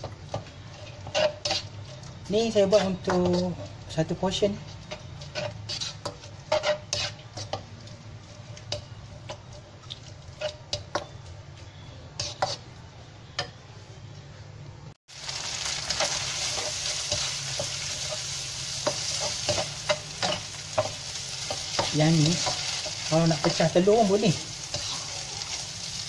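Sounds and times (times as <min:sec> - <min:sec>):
noodles sizzling in a wok: 0:00.0 - 0:11.1, 0:15.1 - 0:26.0
spatula scraping a pan: 0:00.3 - 0:03.8, 0:04.6 - 0:09.4, 0:10.2 - 0:11.1, 0:12.2 - 0:12.7, 0:15.9 - 0:25.7.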